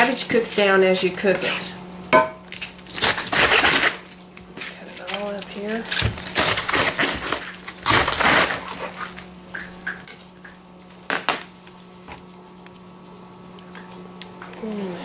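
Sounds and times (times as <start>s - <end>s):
knife crunching through cabbage: 2.5s - 9.4s.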